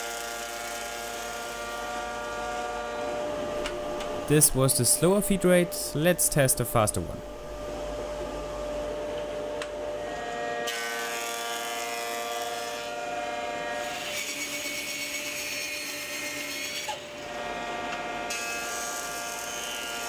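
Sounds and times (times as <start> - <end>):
bandsaw cutting: 0.0 - 2.5, 10.1 - 20.0
planer planing wood: 0.0 - 3.2, 10.0 - 20.0.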